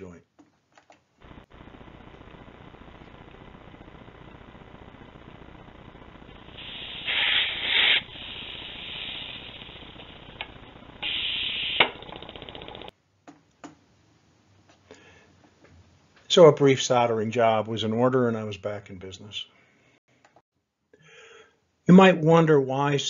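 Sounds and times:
gas hissing from motor: 6.3 - 12.9.

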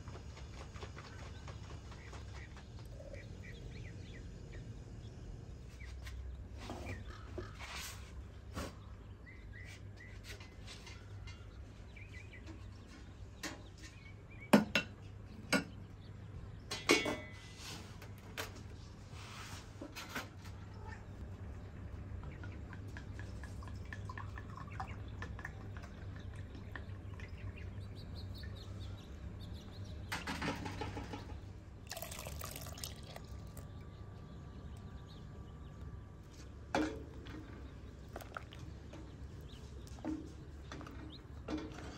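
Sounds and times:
low hum: 0.0 - 7.4, 20.6 - 41.9
birds chirping faintly: 0.0 - 41.9
kitchenware clinking: 16.7 - 17.4
liquid pouring from glass jug: 23.6 - 25.0, 31.8 - 33.7, 38.1 - 38.6.

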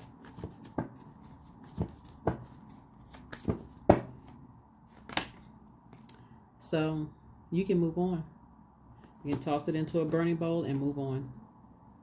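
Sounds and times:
cards tapping on tabletop: 0.3 - 1.0, 1.6 - 4.3.

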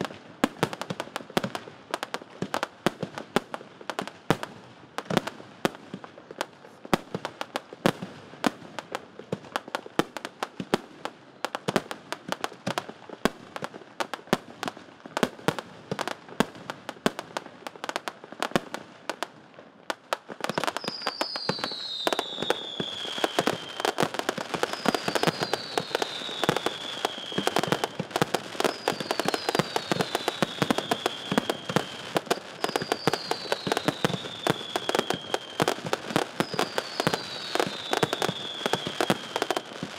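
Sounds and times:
fireworks bangs and crackling: 0.0 - 39.9
falling firework whistles: 20.4 - 39.9.

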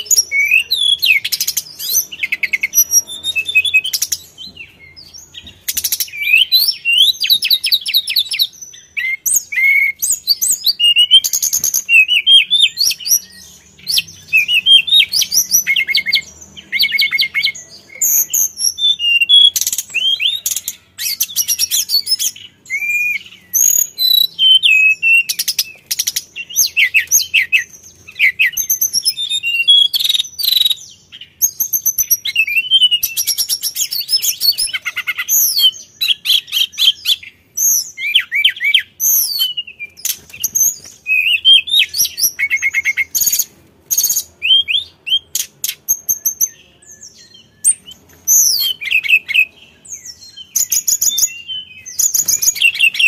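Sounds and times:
bird singing whistled phrases: 0.0 - 53.0.

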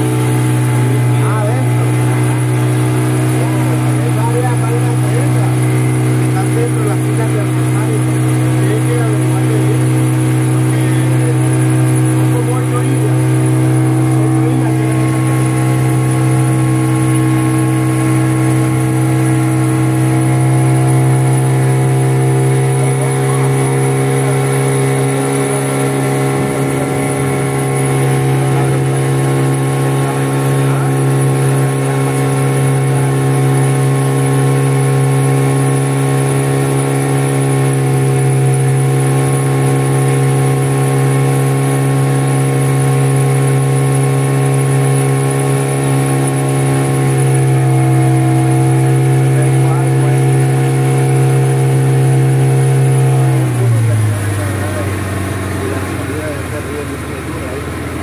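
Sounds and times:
motorboat engine droning: 0.0 - 58.0.

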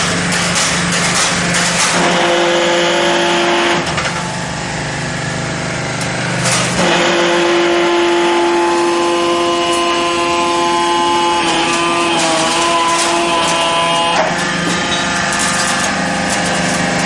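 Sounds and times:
machine clunk: 0.0 - 2.2, 6.4 - 7.0, 9.7 - 17.0
machine humming: 0.0 - 17.0.

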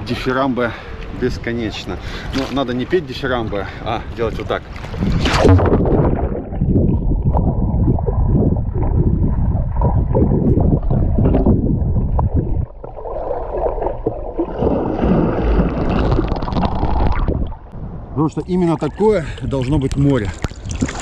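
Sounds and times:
muffled underwater rushing and bubbling: 1.7 - 18.0.

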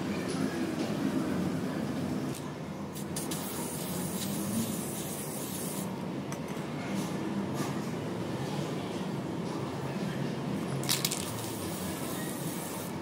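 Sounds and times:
aerosol spray can hissing: 3.0 - 5.9.

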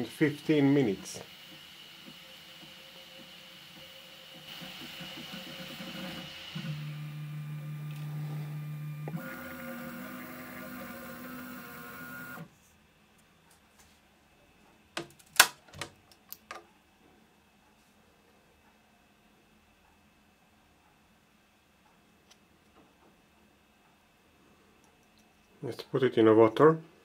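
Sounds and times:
stepper motors whining: 0.0 - 12.5.

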